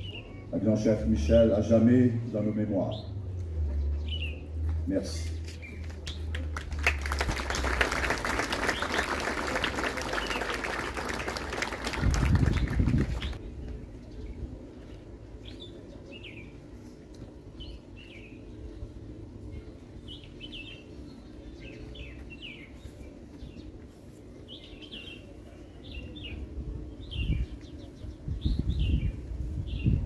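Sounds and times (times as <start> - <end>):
small birds chirping: 19.5 - 30.0.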